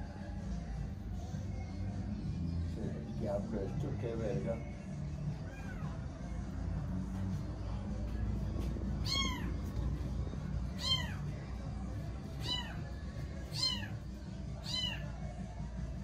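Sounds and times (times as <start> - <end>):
kitten meowing: 5.4 - 6.0, 9.0 - 9.7, 10.7 - 11.3, 12.4 - 12.9, 13.5 - 14.0, 14.6 - 15.2.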